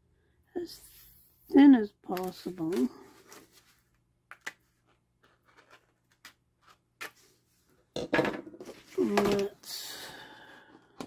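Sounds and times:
paper sheet rustling: 2.2 - 4.0.

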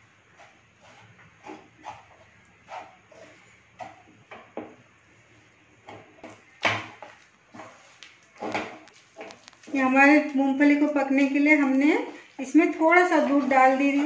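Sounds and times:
spatula scraping a pan: 0.0 - 4.1, 6.0 - 9.8.

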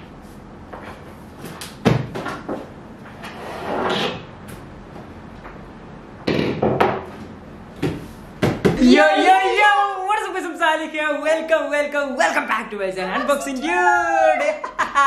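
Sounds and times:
knocks on cardboard box: 7.8 - 8.8.

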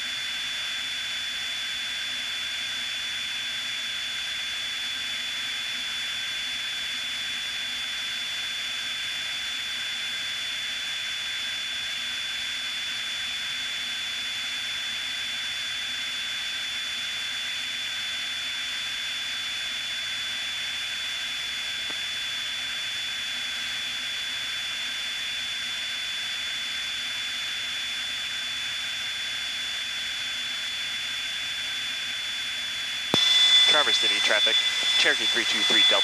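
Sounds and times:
high-pitched whine: 32.8 - 36.0
plane engine hiss in flight: 33.2 - 36.0.

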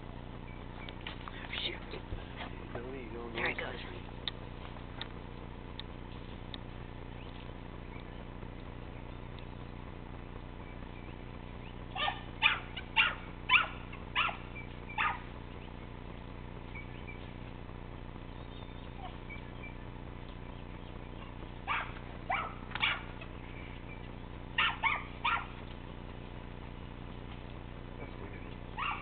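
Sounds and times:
dog barking in sharp yips: 12.0 - 15.3, 21.2 - 23.3, 24.6 - 25.6, 28.8 - 29.0.

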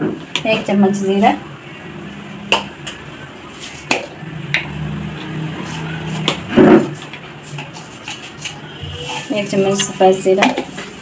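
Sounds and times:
kitchen utensils clicking and knocking: 6.8 - 11.0.

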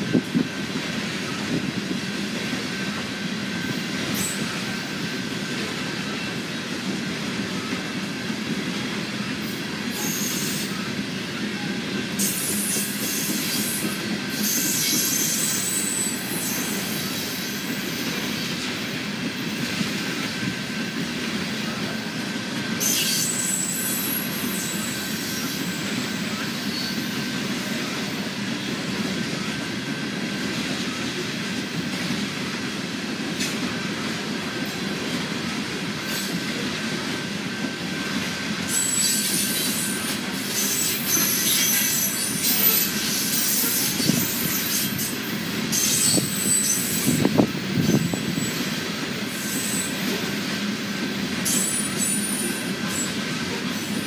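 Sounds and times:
freight train wheels rumbling: 0.0 - 54.0
wheel squeal and clicks: 38.7 - 45.1.

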